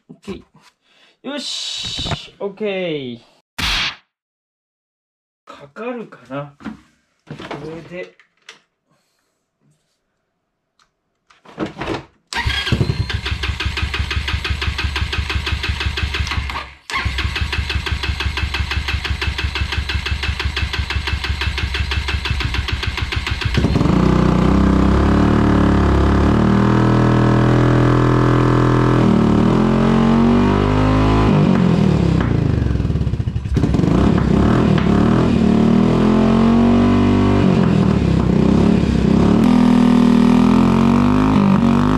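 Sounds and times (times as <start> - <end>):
electric starter cranking engine: 12.4 - 26.2
scooter engine running: 17.0 - 28.2, 31.5 - 35.5.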